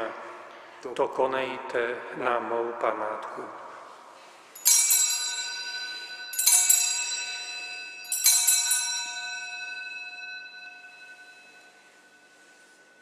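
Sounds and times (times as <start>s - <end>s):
altar bells ringing: 4.2s - 13.0s.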